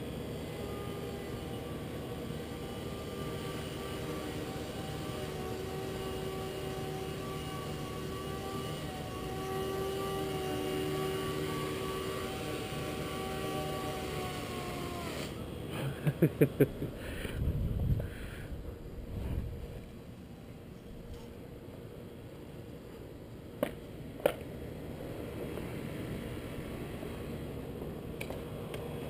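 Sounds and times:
rc helicopter rotor whine: 0.0s - 16.2s.

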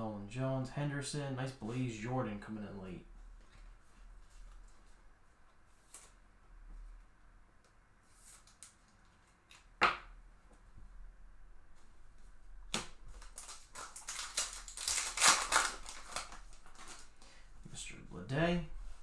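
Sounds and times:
wrapper tearing and crinkling: 13.2s - 17.1s.

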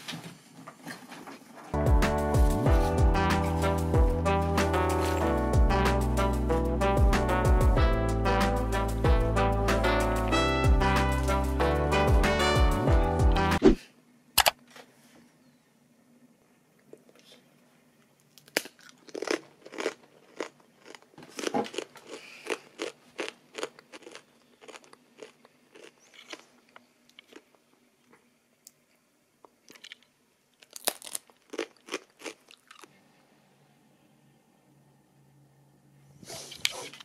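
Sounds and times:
chewing crunchy food: 18.2s - 28.3s, 29.4s - 33.0s.

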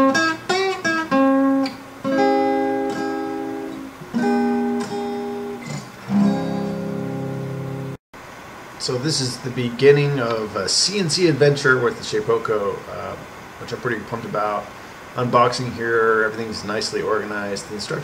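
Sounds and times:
acoustic guitar chords ringing: 0.0s - 8.0s
acoustic guitar plucked notes: 0.0s - 8.0s.

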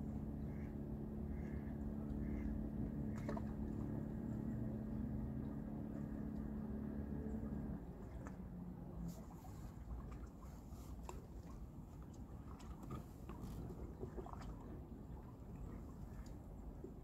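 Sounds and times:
engine humming: 0.0s - 9.9s.

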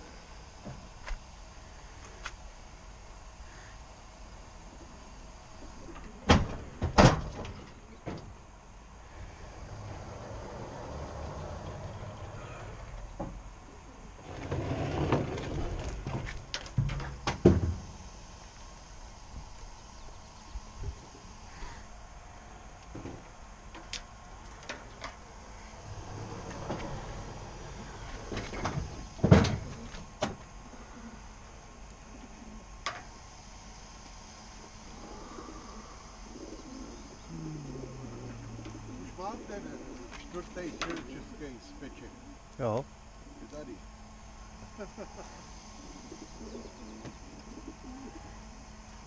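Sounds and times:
pigeons cooing: 9.0s - 16.1s, 25.3s - 32.8s, 34.5s - 42.5s, 44.9s - 48.9s.

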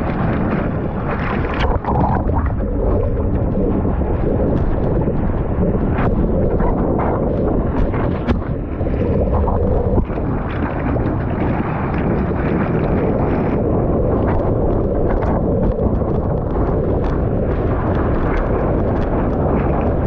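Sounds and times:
small water splashes: 0.0s - 13.5s
wind buffeting microphone: 0.0s - 20.0s
whitewater rushing: 1.2s - 3.8s.

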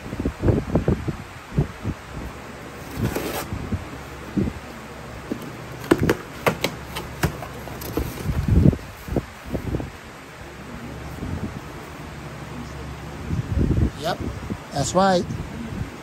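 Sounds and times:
cardboard handled: 2.8s - 3.5s, 5.2s - 8.7s
dull thumps against box: 5.3s - 8.5s.

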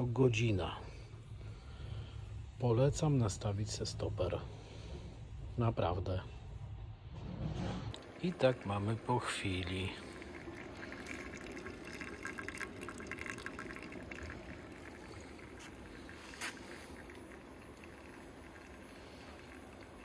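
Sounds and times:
steady hiss: 7.9s - 20.0s
wax and water dripping into pot: 7.9s - 20.0s.

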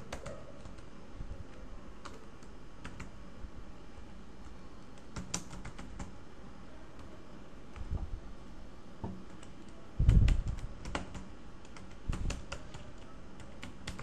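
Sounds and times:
computer keyboard typing: 0.0s - 0.9s, 2.0s - 3.2s, 4.9s - 6.2s, 9.1s - 14.0s.

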